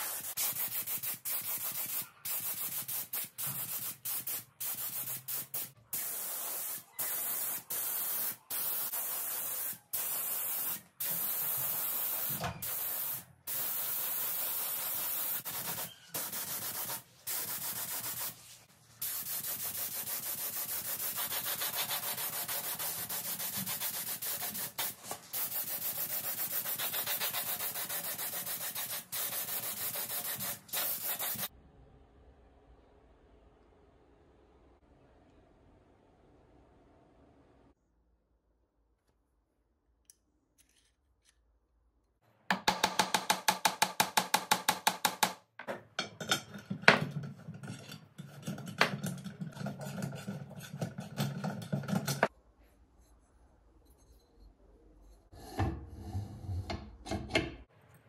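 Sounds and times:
spray gun hissing: 0:00.0 - 0:31.5.

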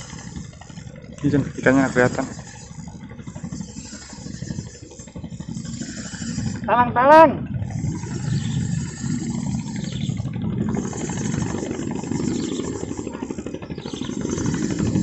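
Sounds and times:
small engine running: 0:00.0 - 0:15.0.

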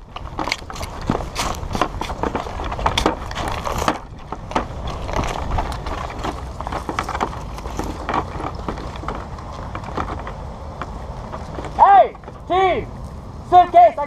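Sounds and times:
footsteps: 0:00.0 - 0:13.2
rattle of carried gear: 0:00.0 - 0:13.2
camera rubbing against clothing: 0:00.4 - 0:10.4.

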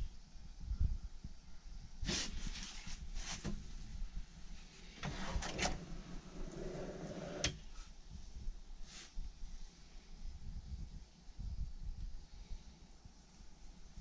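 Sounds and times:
drawer runners scraping: 0:05.0 - 0:07.6.

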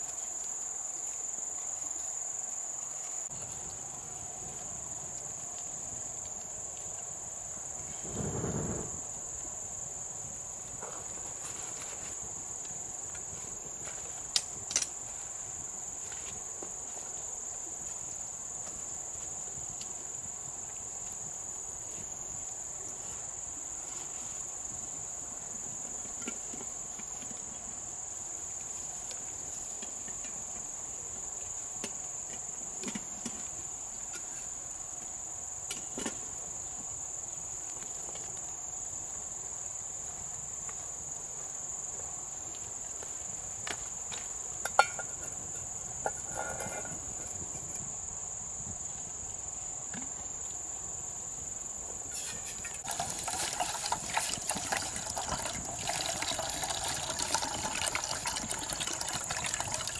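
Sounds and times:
insects chirring: 0:00.0 - 0:59.9
loud crackling noise: 0:08.0 - 0:09.1.

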